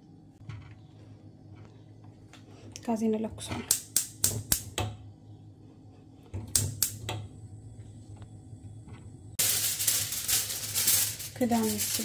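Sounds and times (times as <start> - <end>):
gas burner hissing: 3.6 - 12.0
gas igniter clicking: 3.7 - 4.8, 6.5 - 7.2
aluminium foil crinkling: 9.4 - 12.0.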